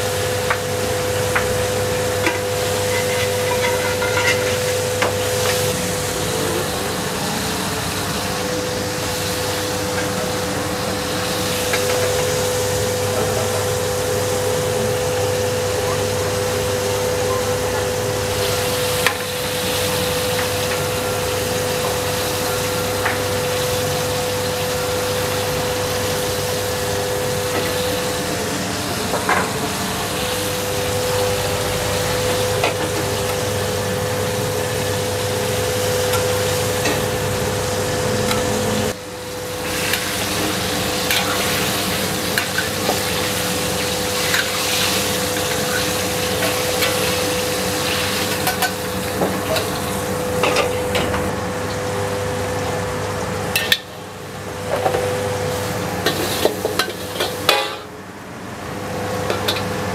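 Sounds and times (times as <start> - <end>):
food sizzling in hot oil: 0.0 - 58.0
metal strainer scraping wok: 2.8 - 4.9
steady hum: 25.0 - 59.9.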